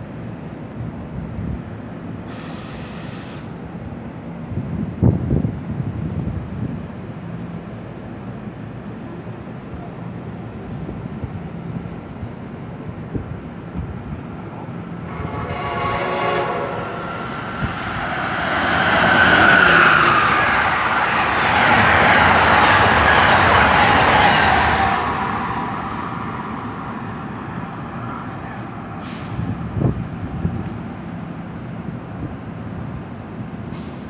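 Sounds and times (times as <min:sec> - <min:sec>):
train passing at speed: 0:03.4 - 0:34.0
train horn: 0:15.0 - 0:21.0.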